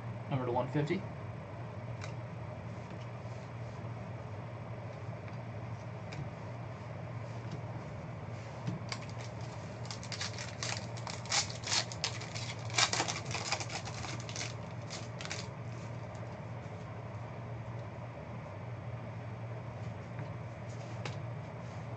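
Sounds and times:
low room hum: 0.0s - 21.9s
foil card pack crinkling: 8.8s - 16.2s.

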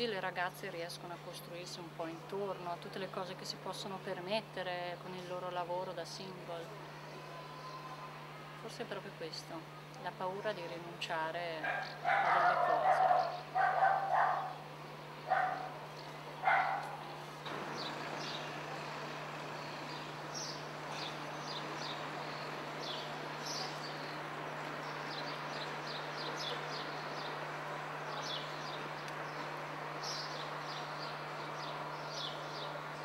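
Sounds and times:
constant low hum: 0.0s - 33.0s
small birds chirping: 9.7s - 33.0s.

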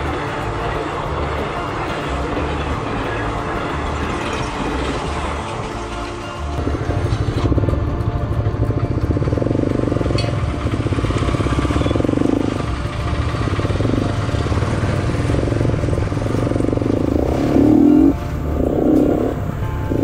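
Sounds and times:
motorcycle engine at low revs: 6.5s - 20.0s.

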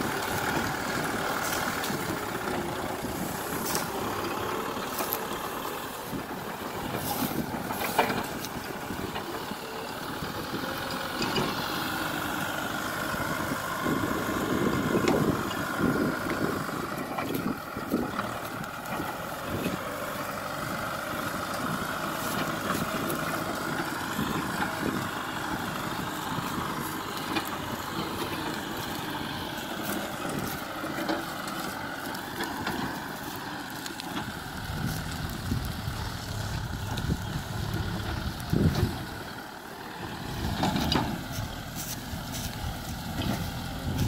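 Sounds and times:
tractor diesel engine running: 0.0s - 44.0s.

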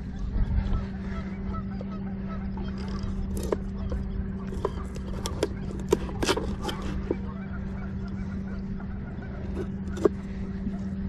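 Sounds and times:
low motor hum: 0.0s - 11.0s
knife cutting on cutting board: 4.5s - 7.1s.

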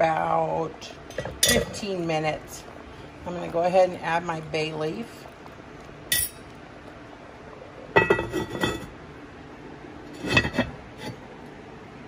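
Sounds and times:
pot lid clinking and clattering: 8.0s - 8.9s, 10.2s - 11.2s.

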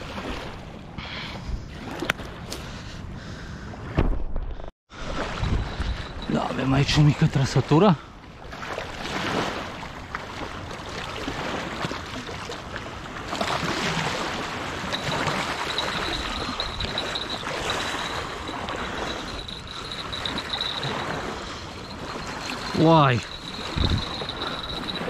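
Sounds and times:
river water lapping and splashing: 0.0s - 3.8s, 4.9s - 25.0s
wind noise: 3.9s - 7.3s, 14.0s - 25.0s
thin high whine: 14.9s - 25.0s.

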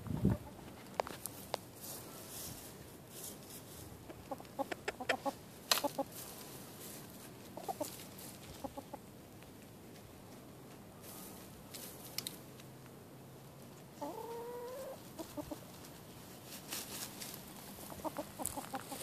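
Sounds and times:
hens clucking: 0.0s - 1.1s, 4.0s - 9.2s, 13.8s - 16.3s, 17.6s - 19.0s
dirt and feathers rustling: 0.0s - 12.7s, 14.6s - 19.0s.

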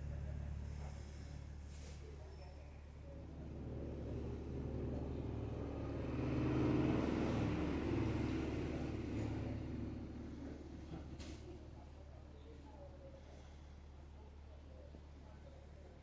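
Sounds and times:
steady low hum: 0.0s - 6.4s
motor vehicle passing: 3.0s - 11.6s.

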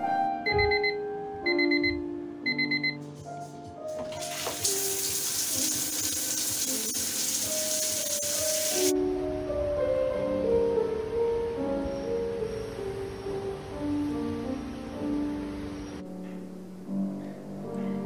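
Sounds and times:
piano music: 0.0s - 18.0s
alarm clock beeping: 0.4s - 3.0s
shower spraying water: 3.9s - 8.9s.

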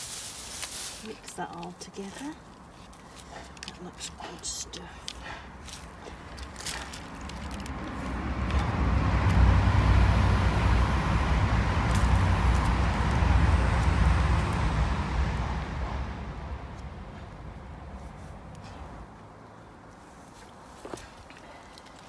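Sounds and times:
car passing by: 6.8s - 19.4s.

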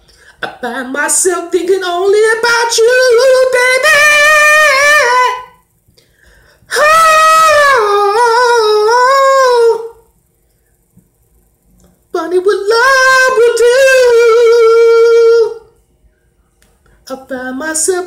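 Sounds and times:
man singing unaccompanied: 0.4s - 5.6s, 6.7s - 10.1s, 12.1s - 15.7s, 17.1s - 18.0s.

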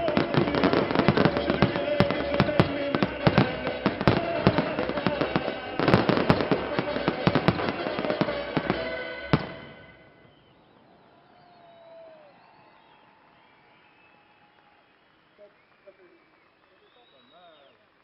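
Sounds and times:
loud firework bang: 0.0s - 10.0s
music: 0.0s - 10.1s
fireworks bursts and crackling: 0.0s - 11.0s.

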